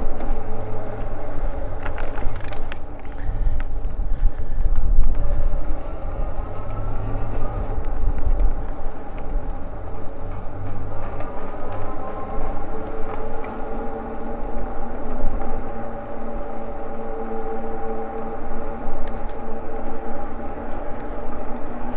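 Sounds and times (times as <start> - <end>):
tyres rumbling on asphalt: 0.0 - 21.9
wind buffeting microphone: 0.0 - 21.9
faint rising whine: 4.8 - 21.9.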